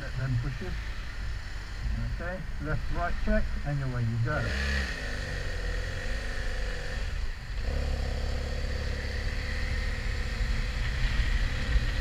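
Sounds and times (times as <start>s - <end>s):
motorcycle engine accelerating: 2.6s - 12.0s.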